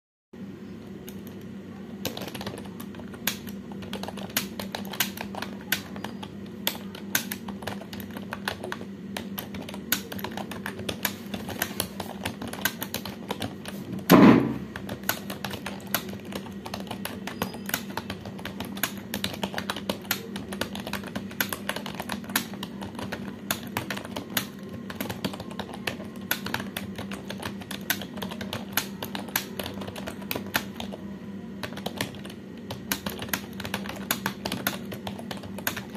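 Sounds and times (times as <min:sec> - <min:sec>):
fast keyboard typing: 0:01.0 - 0:31.0, 0:31.6 - 0:35.9
thump: 0:14.1 - 0:14.6.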